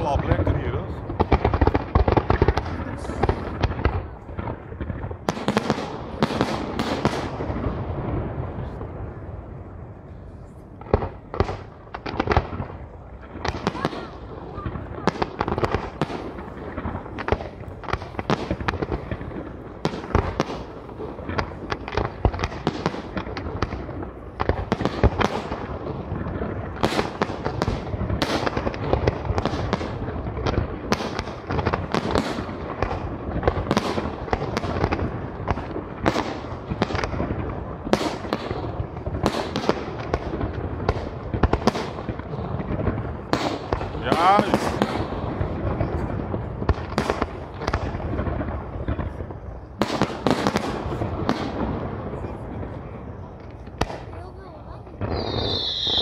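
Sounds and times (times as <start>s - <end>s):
rumbling of fireworks: 0.0s - 56.0s
firework shells bursting: 55.0s - 56.0s.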